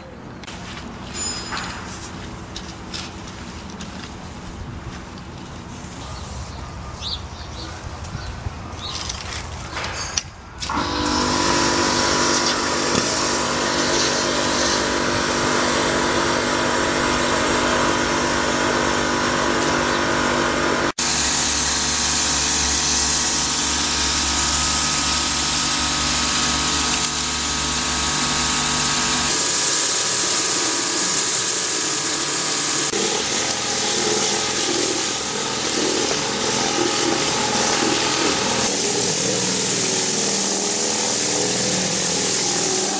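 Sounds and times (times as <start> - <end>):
pressure washer motor hum: 10.6 - 42.9
water hissing through hose: 10.7 - 17.9, 21.0 - 42.9.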